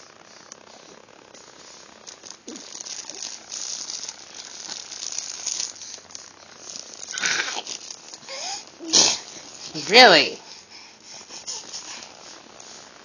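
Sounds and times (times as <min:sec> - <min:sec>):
plush toy rustling and crinkling: 0:02.0 - 0:08.2.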